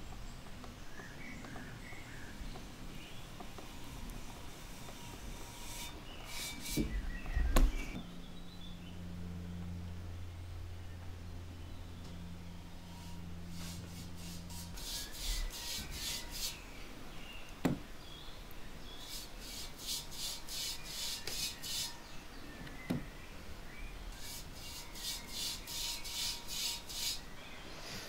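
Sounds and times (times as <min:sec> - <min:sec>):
scratchy paintbrush strokes: 0:12.9 - 0:16.6, 0:19.0 - 0:22.1, 0:24.2 - 0:27.2.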